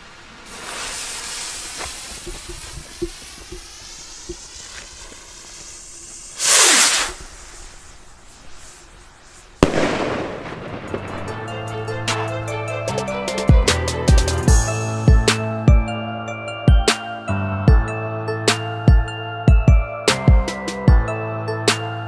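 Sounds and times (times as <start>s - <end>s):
firework bang: 0.0s - 8.7s, 9.5s - 12.4s
rocket launching whoosh: 0.0s - 12.6s
fuse hissing and crackling: 0.0s - 13.4s.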